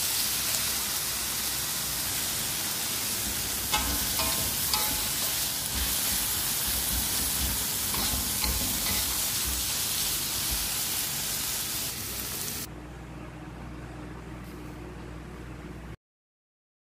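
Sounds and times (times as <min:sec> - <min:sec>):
food sizzling in a wok: 0:00.0 - 0:12.7
metal spatula scraping a pan: 0:03.7 - 0:09.6.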